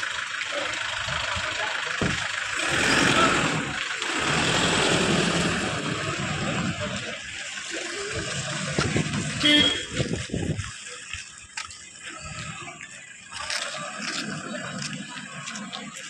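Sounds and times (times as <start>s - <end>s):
diesel engine running: 0.0s - 7.5s.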